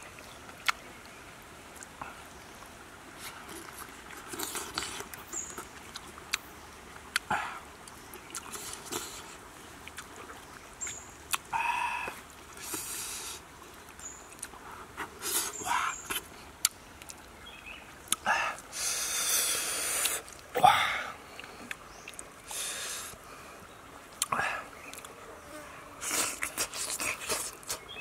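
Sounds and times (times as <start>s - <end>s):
mouth chewing with wet smacks: 0.2s - 0.8s, 3.2s - 17.3s, 18.1s - 18.3s, 19.2s - 20.5s, 21.3s - 22.6s, 24.2s - 25.2s, 26.0s - 28.0s.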